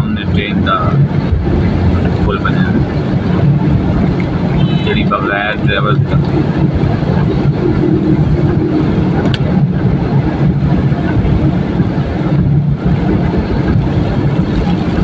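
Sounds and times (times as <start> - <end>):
car engine and tyre drone: 0.0 - 15.0
tyres on wet road: 0.0 - 15.0.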